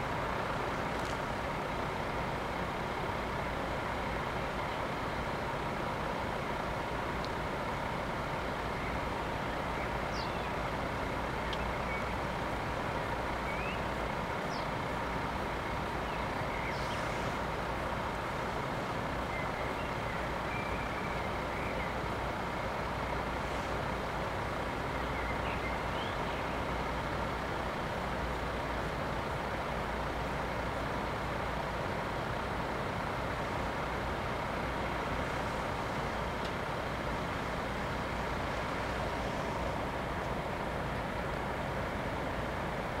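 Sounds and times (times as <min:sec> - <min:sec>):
bird chirps: 0:09.8 - 0:10.6, 0:13.4 - 0:13.9.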